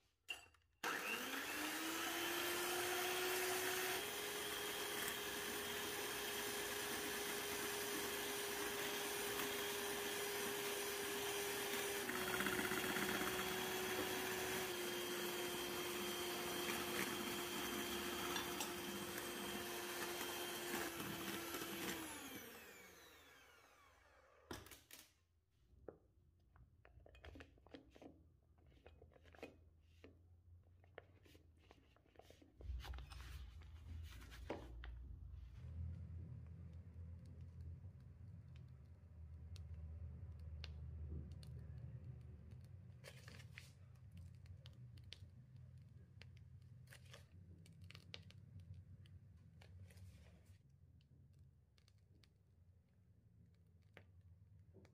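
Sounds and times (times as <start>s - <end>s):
electric hand mixer whining: 0.8s - 24.7s
spatula scraping and tapping: 16.0s - 21.9s, 26.8s - 30.2s.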